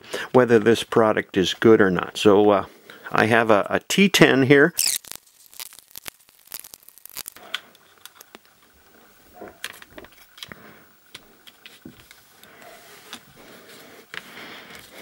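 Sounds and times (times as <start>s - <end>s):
plastic housing clicking and scraping: 7.4s - 8.6s, 9.4s - 13.3s.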